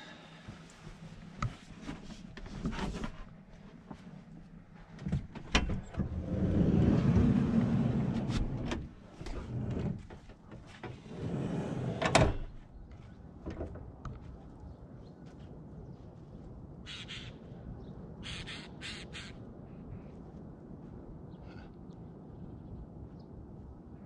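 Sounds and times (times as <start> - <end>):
sliding door rolling open: 5.5 - 12.5.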